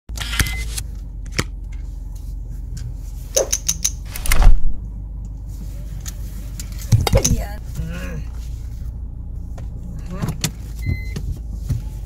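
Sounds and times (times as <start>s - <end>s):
car engine hum in cabin: 0.1s - 12.0s
sharp clicks: 3.4s - 4.5s.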